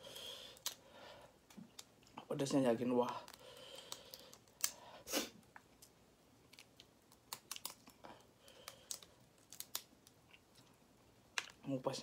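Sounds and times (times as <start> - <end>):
crayfish shell cracking: 0.5 - 0.8, 1.4 - 2.2, 3.0 - 4.8, 5.5 - 10.7, 11.3 - 11.7.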